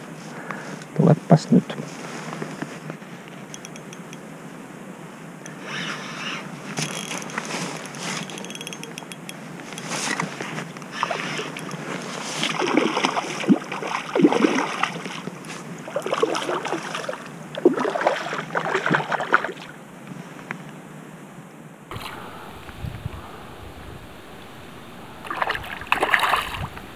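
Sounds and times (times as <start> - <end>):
fish splashing at the surface: 10.9 - 19.8, 21.9 - 23.4, 25.1 - 26.9.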